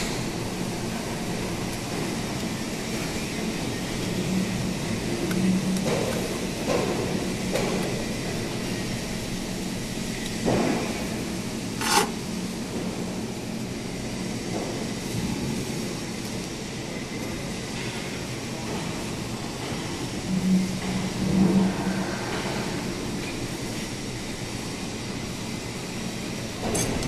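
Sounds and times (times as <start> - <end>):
welding machine hum: 11.0 - 12.8.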